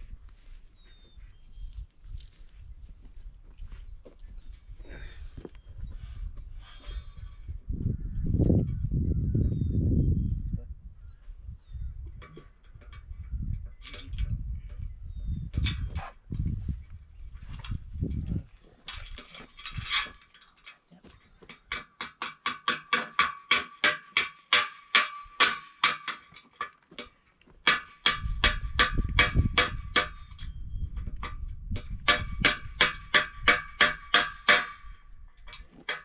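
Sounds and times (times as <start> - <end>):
metallic tapping: 21.4 - 36.0.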